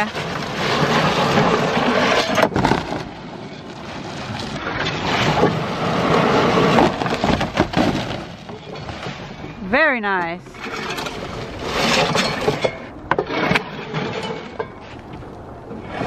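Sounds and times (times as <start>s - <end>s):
shingles scraping and tearing: 0.2s - 9.3s, 10.6s - 15.2s.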